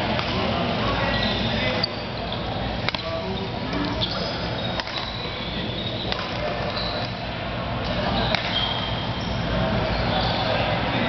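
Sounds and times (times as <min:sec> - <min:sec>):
murmur of voices: 0:00.0 - 0:11.0
rackets hitting shuttlecock: 0:00.1 - 0:00.5, 0:02.4 - 0:09.1
shoes squeaking on court: 0:00.9 - 0:11.0.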